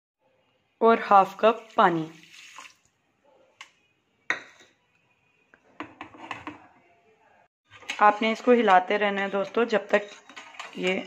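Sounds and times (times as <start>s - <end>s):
water pouring into pan: 1.5s - 2.9s
utensils clinking against pan: 7.8s - 11.0s.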